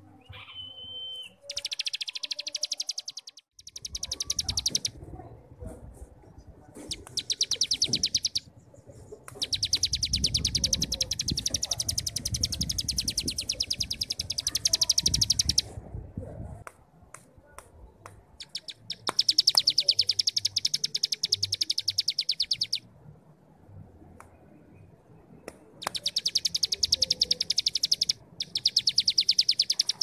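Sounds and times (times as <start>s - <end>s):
songbird rattling trill: 1.4s - 5.0s, 6.9s - 8.5s, 9.3s - 15.7s, 18.4s - 22.8s, 25.8s - 30.0s.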